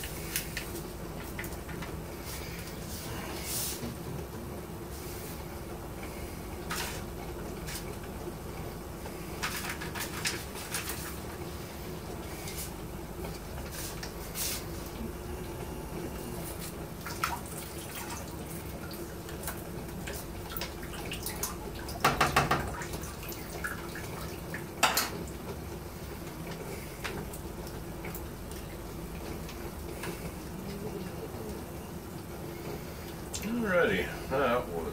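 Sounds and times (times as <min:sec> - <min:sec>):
liquid trickling and dripping: 0:16.4 - 0:34.0.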